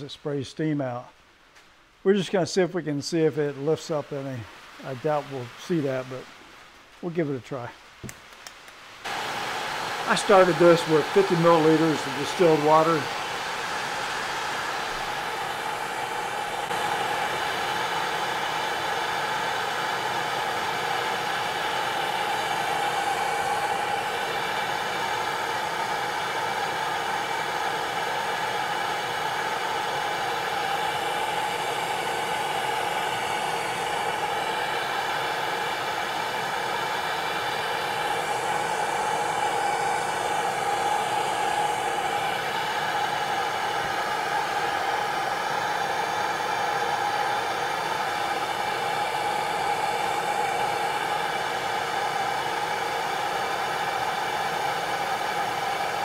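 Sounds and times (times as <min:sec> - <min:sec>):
gas torch flame roaring: 0:08.0 - 0:56.0
steam jetting: 0:09.0 - 0:56.0.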